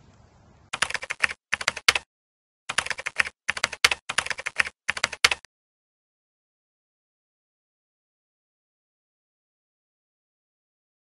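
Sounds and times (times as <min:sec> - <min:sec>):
keyboard key clicks: 0:00.8 - 0:02.0, 0:02.7 - 0:05.5.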